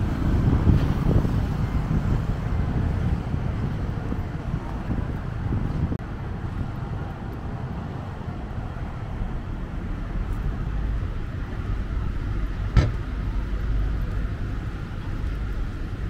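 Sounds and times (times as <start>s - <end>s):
street traffic rumble: 0.0s - 16.0s
sharp knock: 12.7s - 13.0s.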